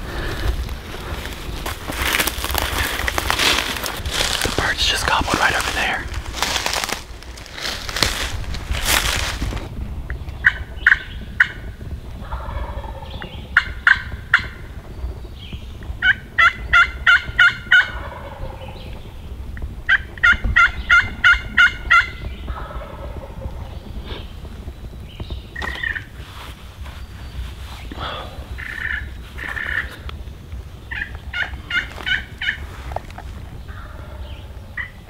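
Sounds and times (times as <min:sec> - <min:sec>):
rustle: 0:00.0 - 0:11.5, 0:12.3 - 0:35.0
turkey yelping: 0:19.9 - 0:23.5, 0:28.6 - 0:29.8.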